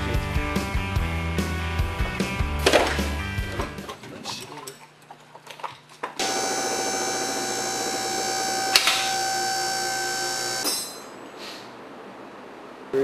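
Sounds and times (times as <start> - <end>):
machine humming and whining: 6.2 - 11.0.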